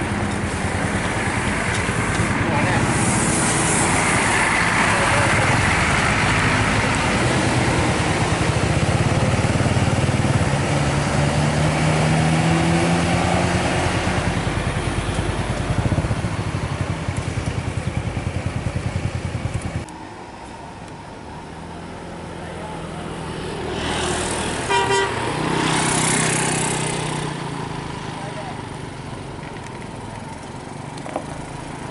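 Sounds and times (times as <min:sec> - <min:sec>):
bus diesel engine passing: 0:00.0 - 0:31.9
motorcycle engines: 0:00.0 - 0:31.9.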